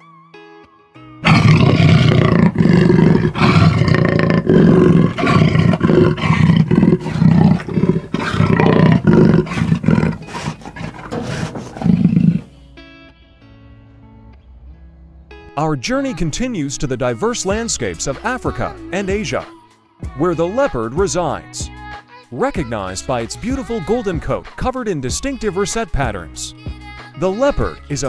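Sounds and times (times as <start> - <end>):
jaguar roaring grunts: 1.2 - 12.5.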